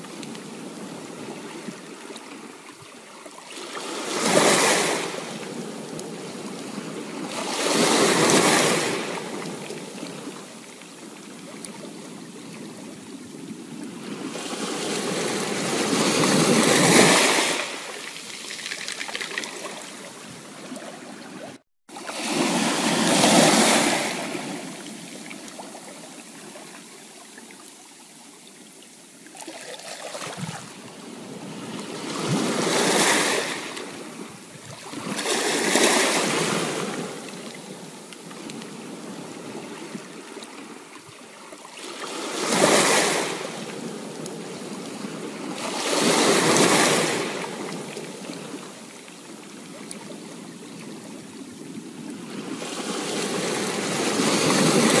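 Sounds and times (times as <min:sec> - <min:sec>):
ocean waves breaking: 0:00.0 - 0:27.0, 0:29.3 - 0:55.0.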